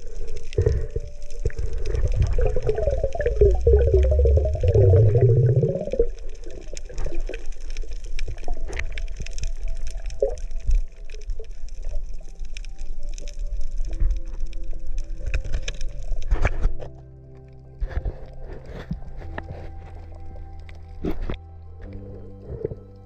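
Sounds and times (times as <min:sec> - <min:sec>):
water sloshing and gurgling: 0:00.0 - 0:12.4
small splashes and clicks: 0:00.0 - 0:23.0.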